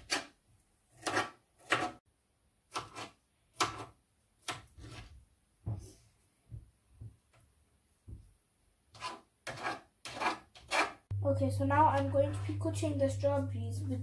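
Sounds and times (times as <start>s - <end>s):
knife cutting fruit on chopping board: 1.0s - 2.0s, 2.7s - 5.2s.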